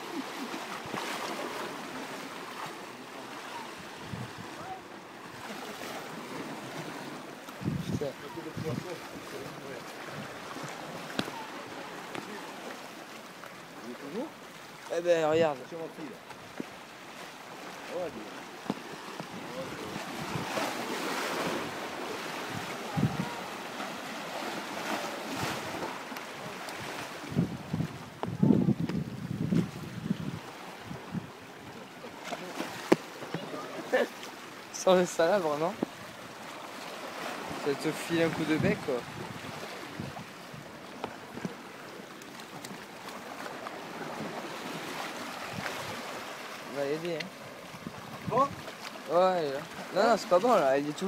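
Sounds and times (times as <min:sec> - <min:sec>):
waves breaking on rocks: 0:00.0 - 0:51.0
wind buffeting microphone: 0:04.0 - 0:04.7, 0:07.6 - 0:09.0, 0:19.2 - 0:20.6, 0:22.4 - 0:23.5, 0:26.9 - 0:31.4, 0:38.4 - 0:41.5.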